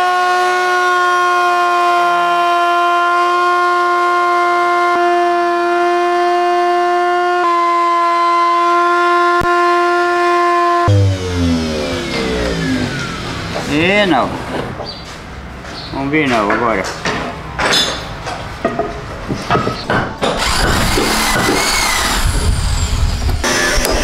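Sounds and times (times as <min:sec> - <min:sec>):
router high whine: 0:10.8 - 0:14.3, 0:20.2 - 0:24.0.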